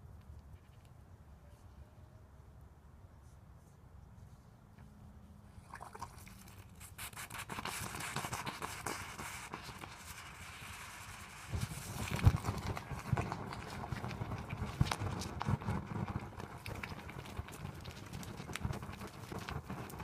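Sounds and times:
crackling hiss of molten metal: 6.3s - 20.0s.

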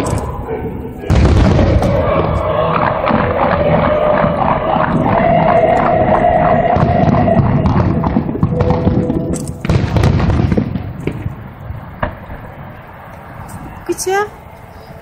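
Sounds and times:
fireworks bursting: 0.0s - 14.2s
sharp firework cracks: 6.8s - 13.3s.

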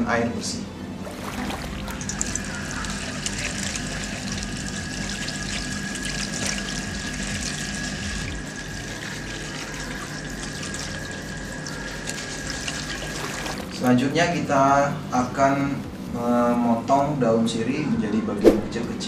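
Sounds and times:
leaves rinsed by hand: 1.0s - 14.2s
tap water splashing into basin: 1.1s - 8.5s, 12.1s - 13.9s.

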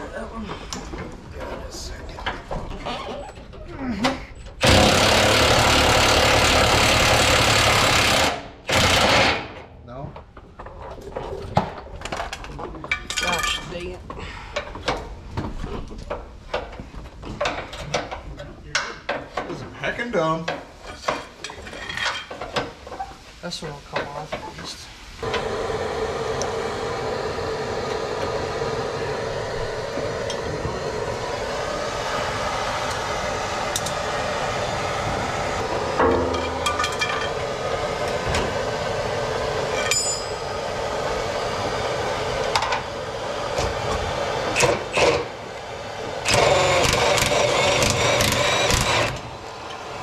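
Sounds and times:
propane torch hissing: 24.5s - 36.0s, 36.8s - 50.0s
impact wrench hammering: 35.7s - 37.4s.

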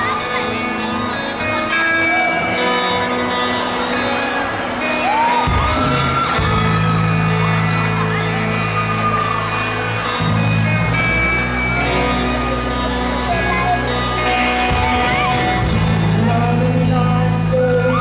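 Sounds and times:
live rock band playing: 0.0s - 18.0s
low bass notes: 5.5s - 18.0s.

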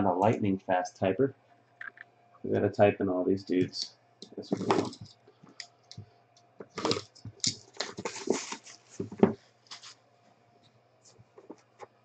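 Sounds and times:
cardboard boxes rustling and knocking: 4.6s - 5.1s, 6.6s - 9.9s.

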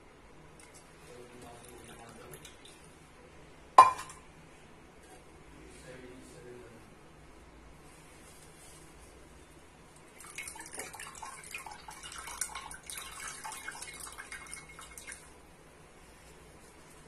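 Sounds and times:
liquid dripping into bowl: 1.4s - 2.9s, 10.0s - 15.3s.

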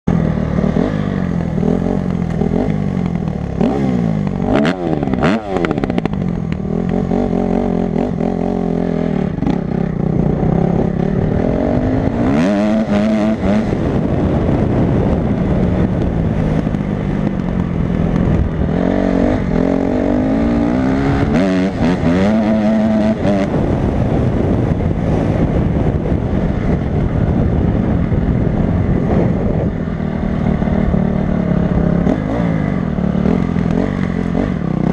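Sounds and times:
dirt bike engine revving: 0.1s - 26.7s, 28.5s - 34.9s.

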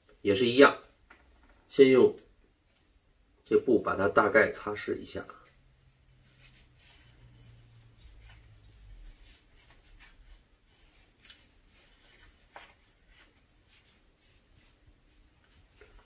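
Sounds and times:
cloth rubbing on metal: 4.6s - 16.0s.

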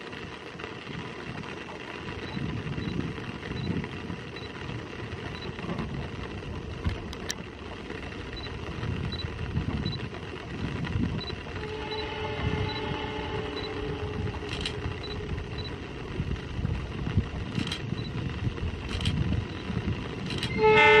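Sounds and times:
outdoor hiss: 0.0s - 21.0s
wind rumbling on microphone: 0.0s - 21.0s
sharp clicks: 14.4s - 15.8s.

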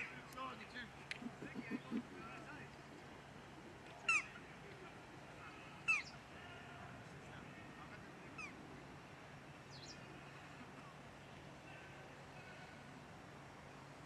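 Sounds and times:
low steady background: 0.0s - 14.0s
bird calling: 1.1s - 3.1s, 4.0s - 4.4s, 5.4s - 6.3s, 8.4s - 8.6s.

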